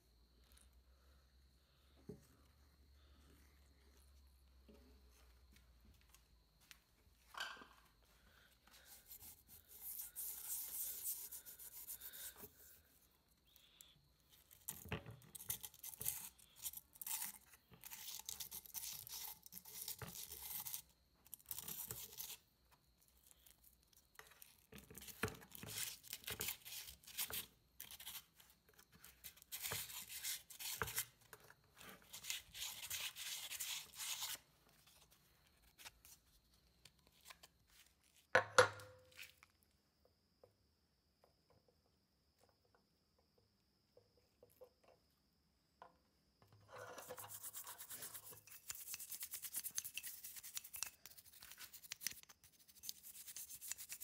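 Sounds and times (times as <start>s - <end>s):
sandpaper rubbing on metal: 52.5s - 54.0s.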